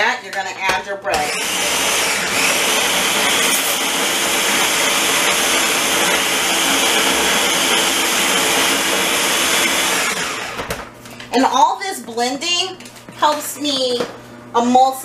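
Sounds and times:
electric food chopper running: 1.1 - 10.9.

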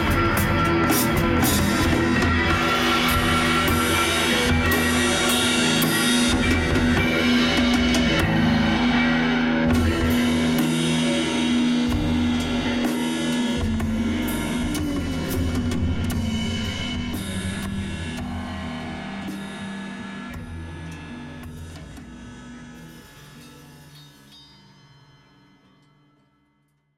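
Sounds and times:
drums and cymbals: 0.0 - 25.0
held notes: 13.6 - 20.2.

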